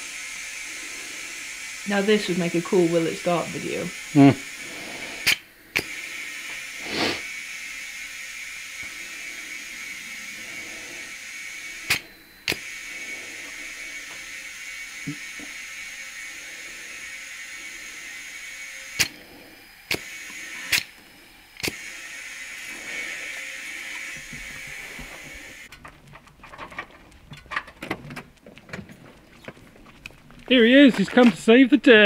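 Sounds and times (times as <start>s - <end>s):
compressed air hissing into tyre: 0.0s - 25.7s
tyre inflator clicks: 5.0s - 7.2s, 11.8s - 12.7s, 18.9s - 19.3s, 19.9s - 21.0s, 21.6s - 22.0s.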